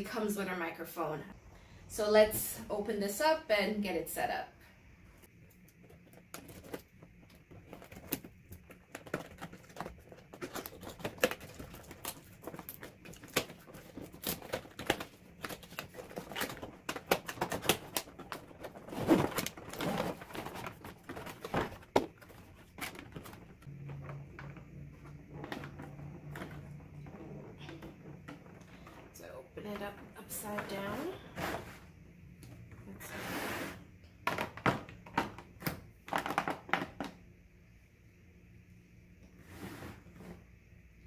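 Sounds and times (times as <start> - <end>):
cardboard and plastic packaging opened: 5.8 - 26.6.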